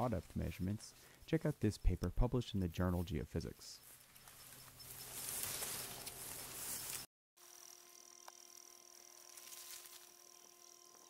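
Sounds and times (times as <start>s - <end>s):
faint electrical hum with high tones: 4.6s - 11.0s.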